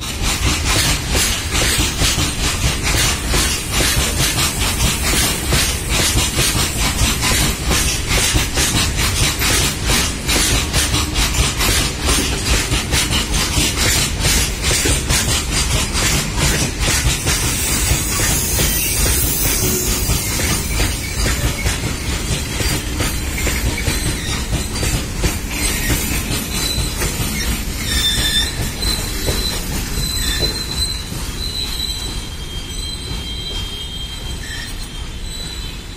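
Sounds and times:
wheels clicking over rail joints: 0.0s - 32.4s
freight train wheels rumbling: 0.0s - 35.9s
high wheel squeals: 17.2s - 35.9s.

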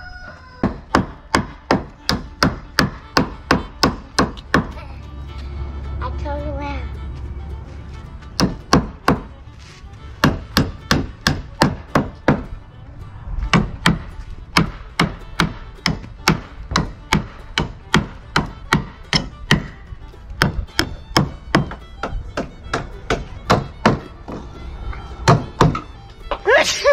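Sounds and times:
hammer striking wood: 0.6s - 4.8s, 8.4s - 9.3s, 10.2s - 12.5s, 13.5s - 19.8s, 20.4s - 24.4s, 25.2s - 26.4s.

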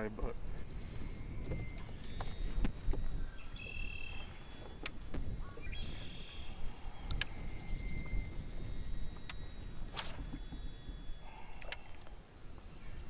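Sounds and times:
wind rumble on microphone: 0.0s - 13.0s
birds whistling calls: 0.2s - 13.0s
sharp clicks: 7.0s - 7.4s.

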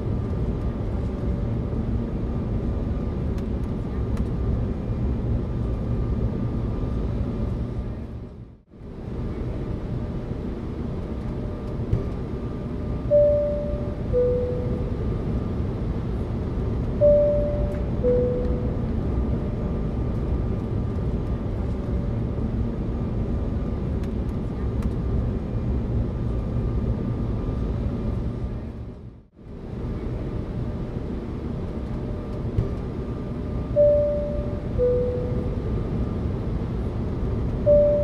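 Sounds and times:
airliner cabin drone: 0.0s - 38.0s
two-tone chime: 13.1s - 14.8s, 17.0s - 18.8s, 33.8s - 35.5s, 37.7s - 38.0s.

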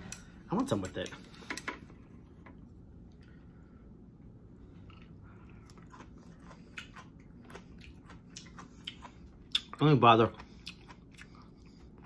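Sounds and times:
faint chewing: 4.7s - 12.0s.

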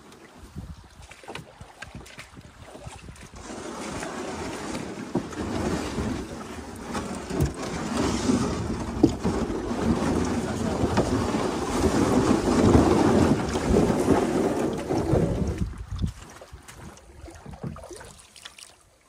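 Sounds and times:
wind buffeting microphone: 0.4s - 3.4s, 7.4s - 18.0s.

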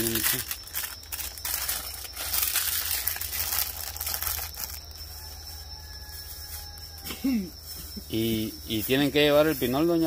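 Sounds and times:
kindling and plastic crinkling: 0.0s - 5.8s.

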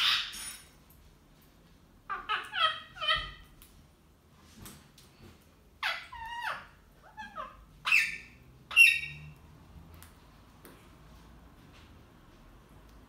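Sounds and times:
parakeets squawking: 0.0s - 0.5s, 2.1s - 3.4s, 5.8s - 9.3s.

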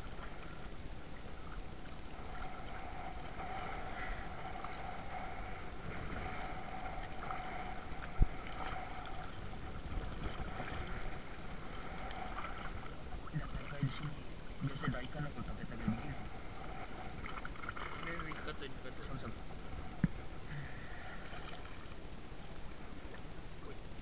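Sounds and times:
faint steady hum: 0.0s - 24.0s
water sloshing around boat: 0.0s - 24.0s.

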